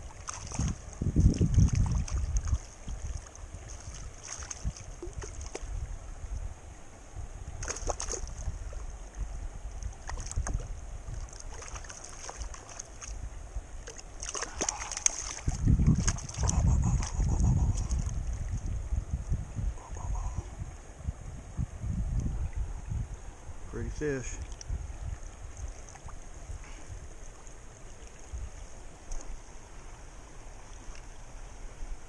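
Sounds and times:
small water splashes: 0.0 - 6.0, 7.5 - 18.8, 24.2 - 29.4
wind gusts on microphone: 0.0 - 13.8, 14.4 - 29.4
stream water running: 0.0 - 32.0.

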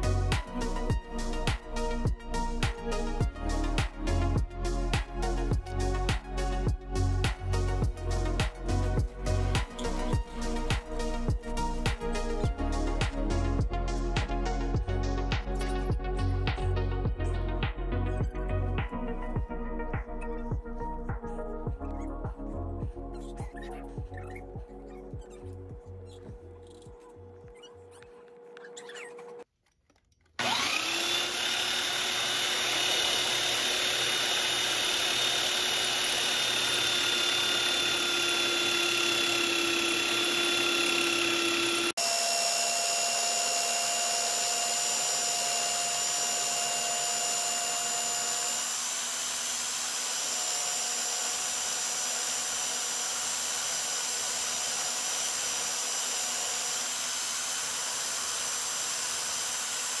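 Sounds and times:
electric power sander whining: 5.0 - 13.0, 30.4 - 60.0.

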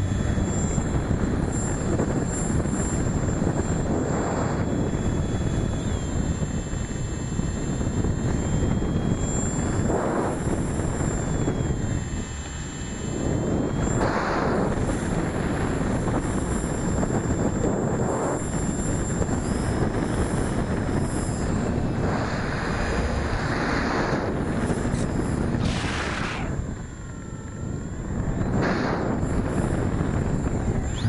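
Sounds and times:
wind rushing on microphone: 0.0 - 31.0.

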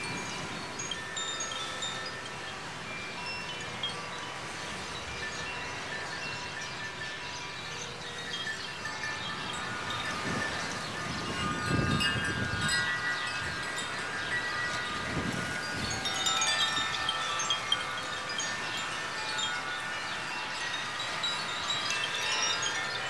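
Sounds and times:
wind chimes ringing: 0.0 - 23.0
wind rumbling on microphone: 0.0 - 23.0.

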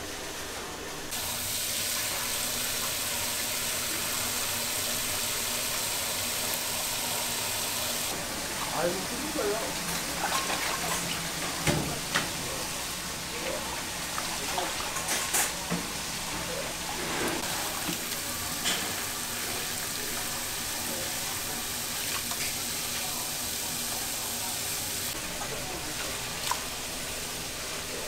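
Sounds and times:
tap water running into sink: 1.1 - 12.5
splashing and sloshing water: 8.0 - 12.6, 13.2 - 20.4, 21.0 - 23.9, 25.1 - 27.2.

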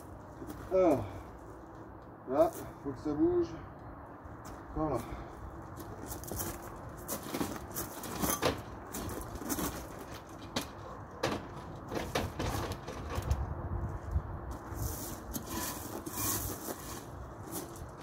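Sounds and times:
ladder metallic clicks and knocks: 7.3 - 13.5.

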